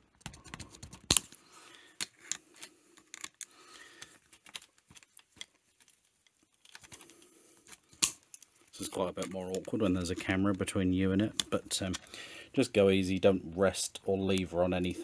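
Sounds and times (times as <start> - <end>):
pliers clicking and scraping on metal: 2.0 - 10.6.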